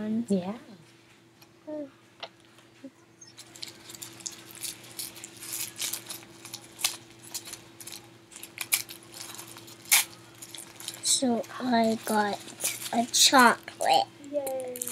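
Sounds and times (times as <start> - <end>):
plastic packaging crinkling: 3.4 - 14.9.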